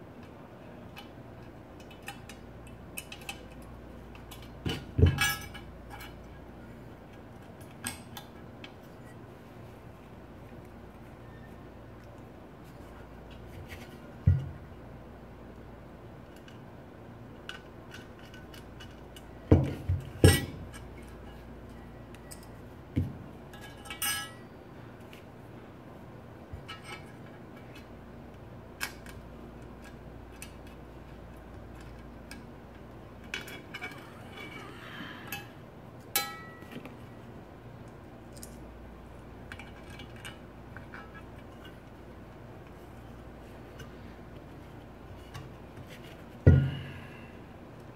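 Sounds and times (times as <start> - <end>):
knocks of parts on a bench: 14.2 - 14.6, 19.5 - 20.6, 23.0 - 23.2, 46.4 - 46.9.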